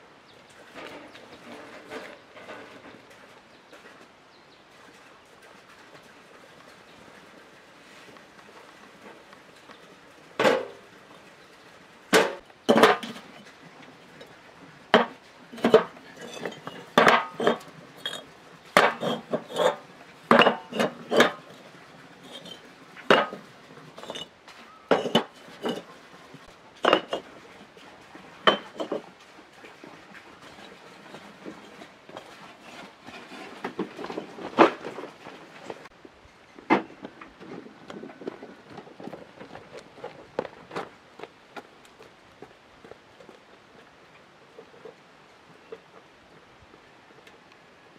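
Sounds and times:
bricks clinking into metal wheelbarrow: 0.6 - 3.2, 8.7 - 11.3, 12.1 - 29.1, 29.7 - 35.9.

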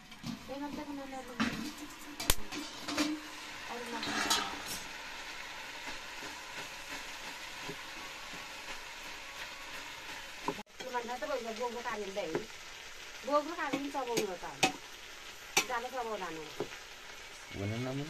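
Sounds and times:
metal ladle stirring in pot: 0.0 - 4.9
vegetables sizzling in a pot: 0.0 - 18.0.

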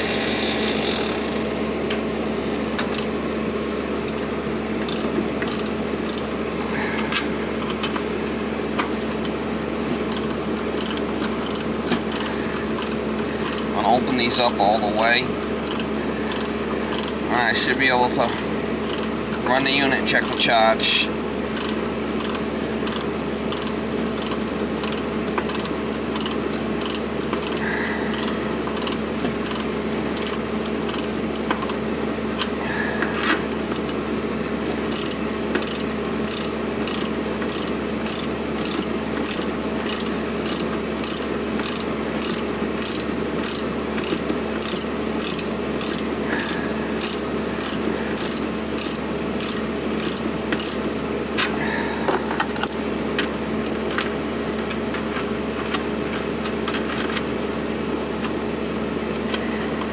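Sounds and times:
air conditioner unit humming: 0.0 - 59.9
fast regular ticking: 4.0 - 6.3, 10.1 - 31.8, 34.8 - 50.9.

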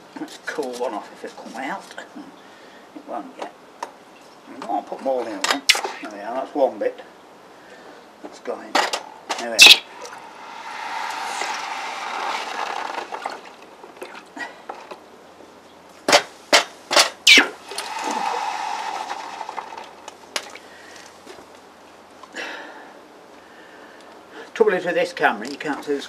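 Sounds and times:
hot metal hissing in water: 9.6 - 12.2, 17.3 - 20.1.

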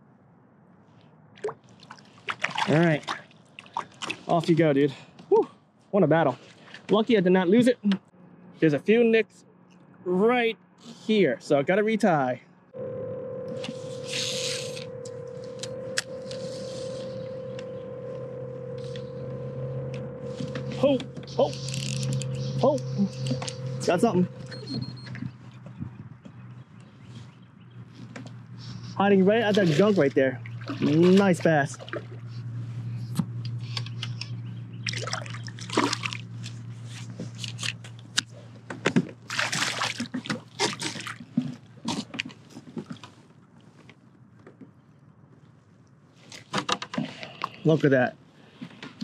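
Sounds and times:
water splashing and trickling: 1.4 - 4.6, 29.2 - 32.4, 34.8 - 36.6, 39.2 - 41.4
fishing reel spool whirring: 12.8 - 25.4
motor hum: 12.8 - 38.2.

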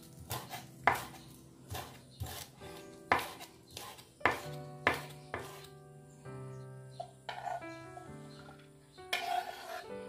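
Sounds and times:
soft background music: 0.0 - 10.0
knife chopping on wooden board: 0.2 - 5.7.

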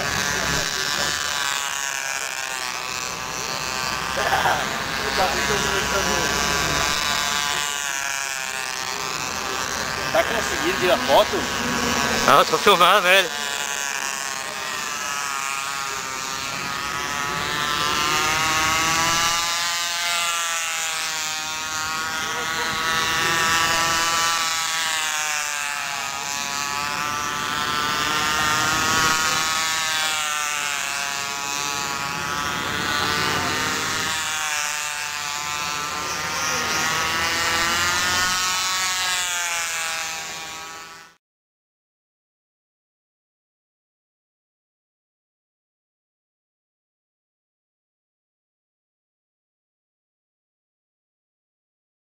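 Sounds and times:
model airplane engine buzzing: 0.0 - 41.2.

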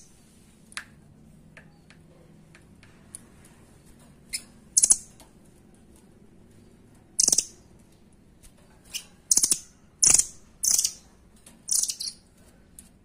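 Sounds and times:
bird rattling calls: 4.3 - 5.1, 7.2 - 7.6.

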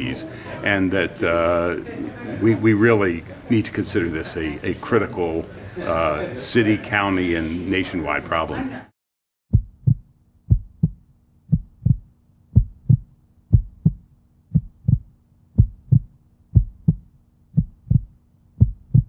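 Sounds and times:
heartbeat lub-dub thumps: 9.5 - 19.0.

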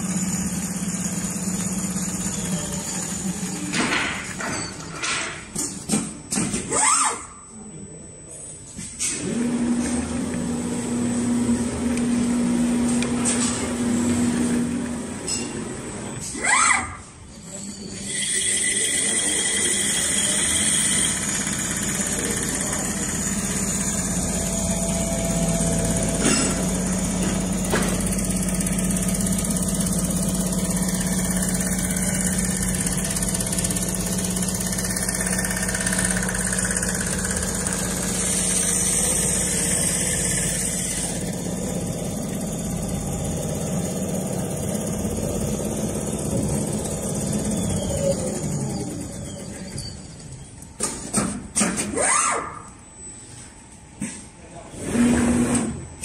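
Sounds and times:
sewing machine running: 0.0 - 4.4, 18.1 - 49.8.

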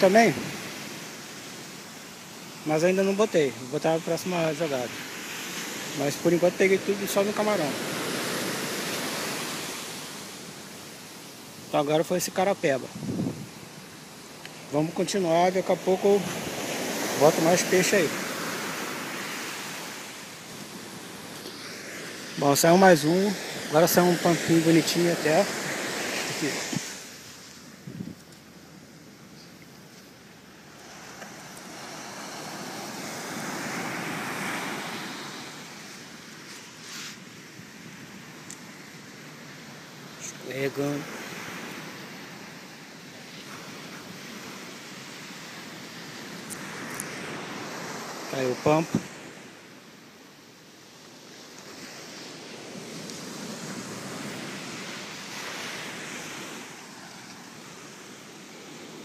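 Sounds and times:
wave washing onto beach: 0.0 - 59.0.

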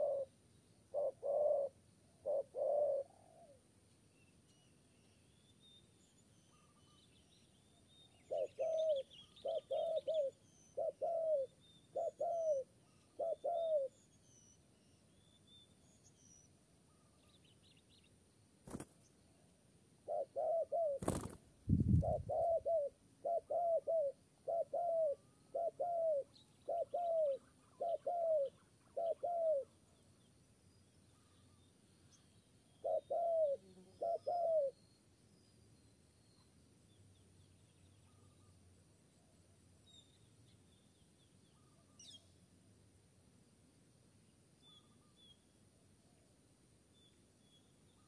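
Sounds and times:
dove cooing: 0.0 - 0.3, 0.9 - 3.6, 8.2 - 14.0, 20.0 - 29.7, 32.8 - 34.8
small birds chirping: 0.0 - 42.6.

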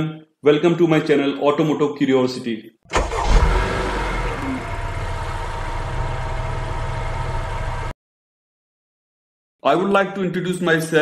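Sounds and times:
car engine revving and running: 2.9 - 7.9.

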